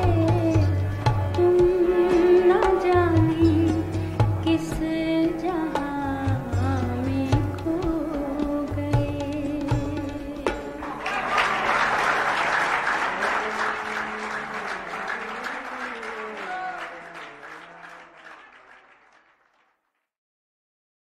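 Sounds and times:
live song notes: 0:00.0 - 0:17.7
audience applause: 0:10.8 - 0:19.8.

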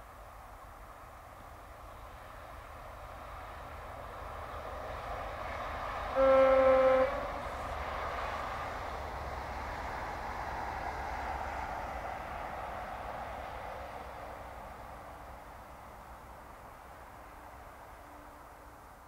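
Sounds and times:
train rushing past: 0:01.8 - 0:19.0
train horn: 0:06.1 - 0:07.8, 0:18.0 - 0:18.7.

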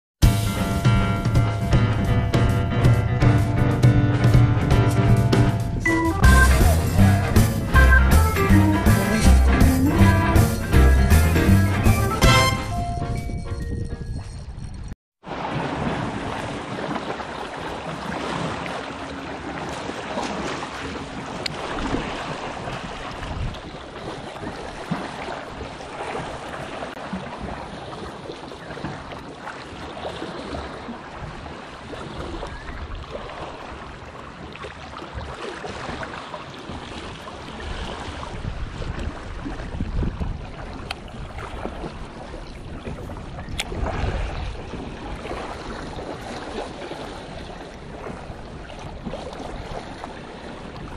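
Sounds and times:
wind buffeting microphone: 0:13.1 - 0:15.0, 0:19.3 - 0:29.2, 0:36.6 - 0:50.9
waves splashing on boulders: 0:15.2 - 0:50.9.

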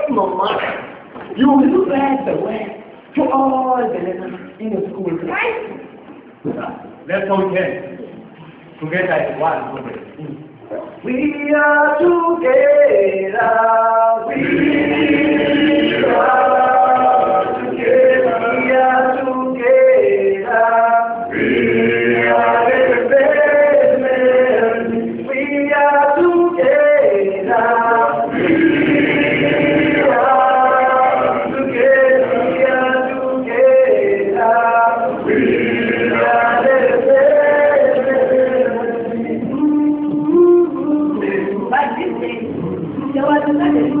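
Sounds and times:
group of voices singing unaccompanied: 0:11.0 - 0:44.0.

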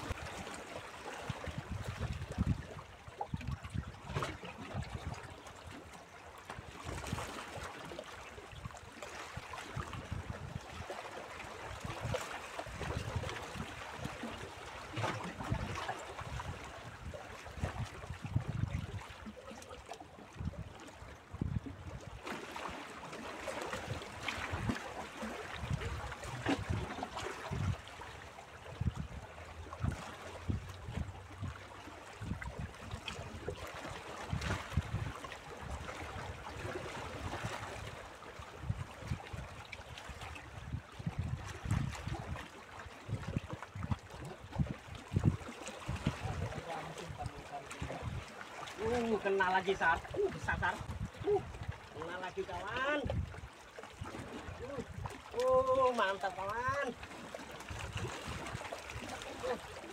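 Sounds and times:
waves lapping against rocks: 0:00.0 - 0:59.9
wind buffeting microphone: 0:43.1 - 0:48.2.

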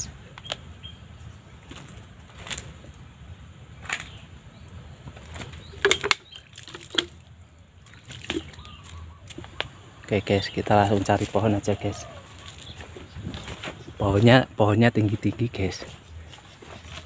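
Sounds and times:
plastic water bottle clicking: 0:05.4 - 0:07.2
gear knocking and rustling: 0:12.4 - 0:14.3.

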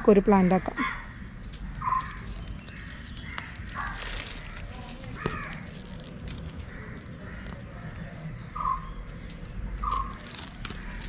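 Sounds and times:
crow cawing: 0:00.5 - 0:05.8, 0:06.6 - 0:09.0, 0:10.7 - 0:11.0
hands pulling apart soil roots: 0:01.3 - 0:11.0.

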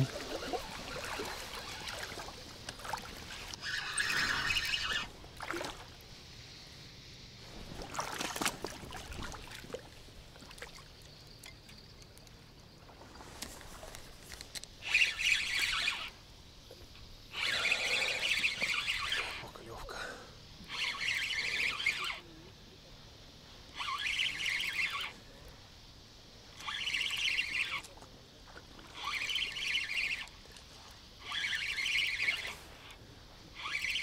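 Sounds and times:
fishing reel whirring: 0:00.0 - 0:05.1, 0:14.5 - 0:16.1, 0:17.3 - 0:19.6, 0:20.6 - 0:22.3, 0:23.7 - 0:25.2, 0:26.5 - 0:27.9, 0:28.7 - 0:30.6, 0:31.2 - 0:34.0
faint steady hush: 0:08.9 - 0:34.0.

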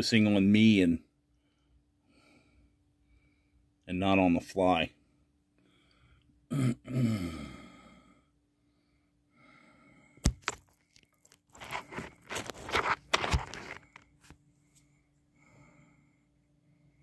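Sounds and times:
scraping and rubbing: 0:10.3 - 0:14.3.

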